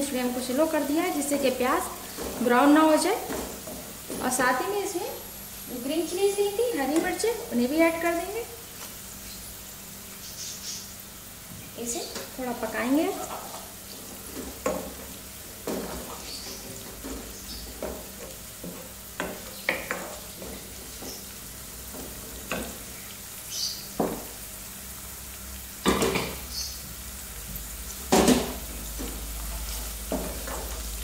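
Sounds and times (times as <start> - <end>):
food sizzling in oil: 0.0 - 31.0
spatula scraping a pan: 28.3 - 30.9.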